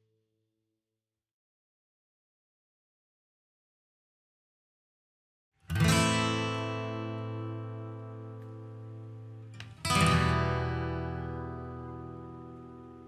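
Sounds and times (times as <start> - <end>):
acoustic guitar chords ringing: 5.7 - 13.0.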